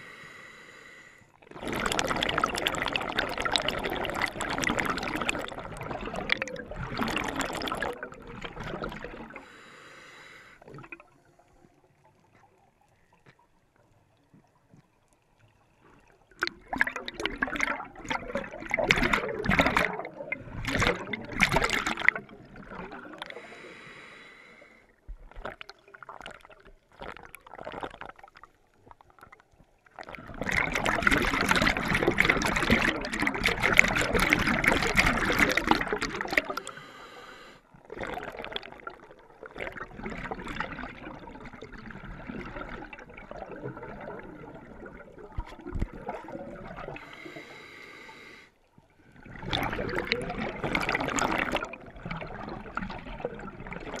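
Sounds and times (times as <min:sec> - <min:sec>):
exhaled bubbles rushing: 0:01.5 - 0:09.4, 0:10.6 - 0:11.3, 0:15.9 - 0:23.4, 0:25.1 - 0:36.8, 0:37.8 - 0:47.1, 0:49.0 - 0:54.0
small bubble bursts: 0:01.5 - 0:09.4, 0:10.6 - 0:23.4, 0:25.1 - 0:36.8, 0:37.9 - 0:47.1, 0:49.1 - 0:54.0
regulator inhalation hiss: 0:36.7 - 0:37.6.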